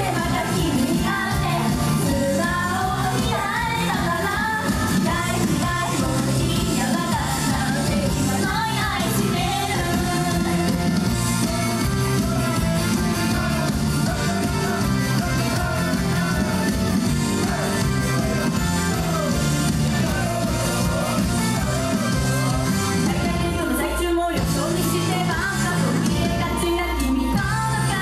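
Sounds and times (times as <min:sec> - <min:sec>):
live pop song with singing: 0:00.0 - 0:28.0
steady bass line: 0:00.0 - 0:28.0.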